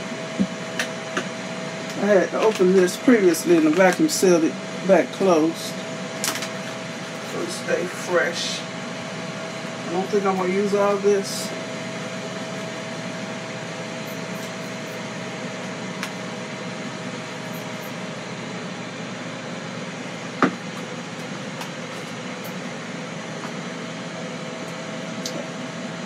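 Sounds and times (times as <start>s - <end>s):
steady mechanical hum: 0.0s - 26.0s.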